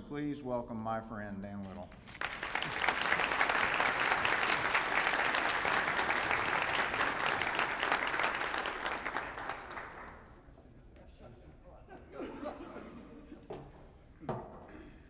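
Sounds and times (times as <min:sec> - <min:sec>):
audience applauding: 0:01.9 - 0:10.3.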